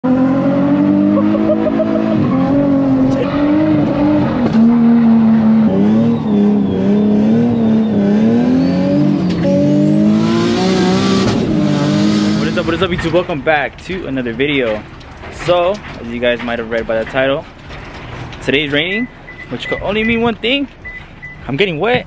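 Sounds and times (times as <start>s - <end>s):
car engine revving loud exhaust: 0.0s - 13.2s.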